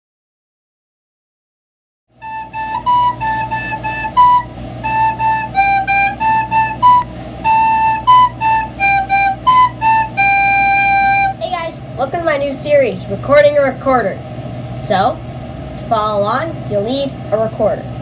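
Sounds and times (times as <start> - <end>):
recorder melody: 2.2 - 11.4.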